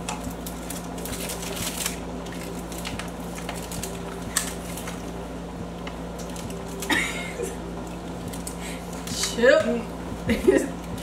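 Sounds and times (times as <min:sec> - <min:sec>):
snack packaging rustling: 0:00.0 - 0:05.2, 0:06.1 - 0:07.0
steady low hum: 0:00.0 - 0:11.0.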